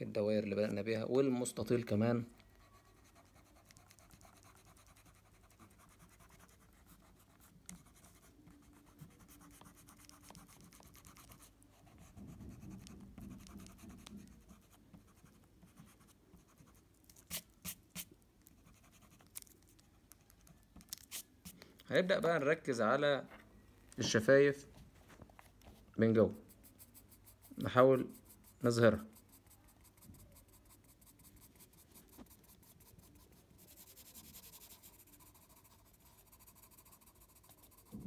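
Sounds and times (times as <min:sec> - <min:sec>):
eraser rubbing on paper: 0:03.0 - 0:16.0, 0:16.6 - 0:18.1, 0:26.4 - 0:38.0.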